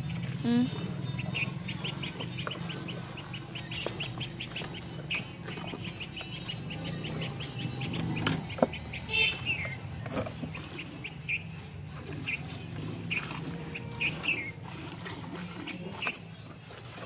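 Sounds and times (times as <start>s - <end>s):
milk squirting into steel bucket: 12.2s - 17.0s.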